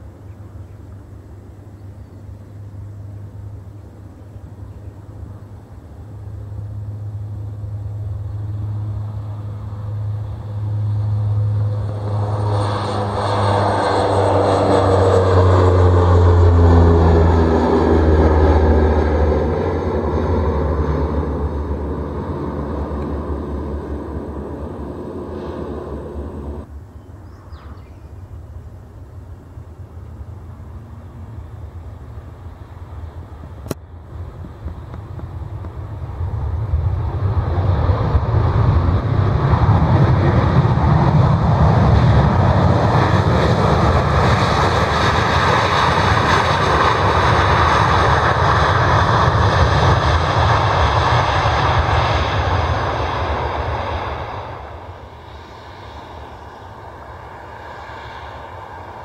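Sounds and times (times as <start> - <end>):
jet engines at takeoff: 0.0 - 59.0.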